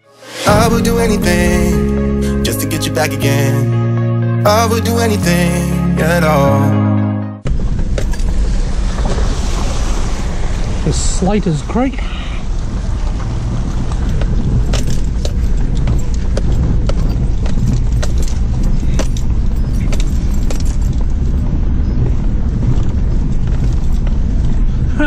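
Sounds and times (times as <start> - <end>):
vehicle engine running: 7.4 - 25.0
vehicle rattling: 7.4 - 25.0.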